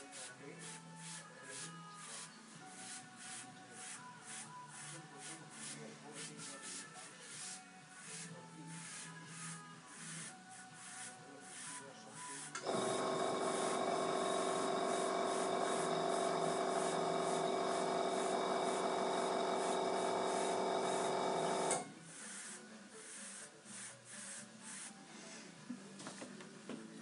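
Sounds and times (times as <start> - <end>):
air compressor motor humming: 12.5 - 21.9.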